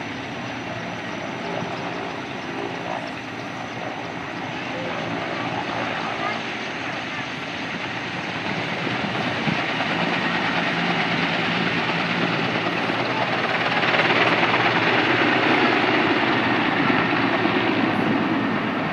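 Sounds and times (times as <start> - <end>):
helicopter rotor and turbine noise: 0.0 - 18.9.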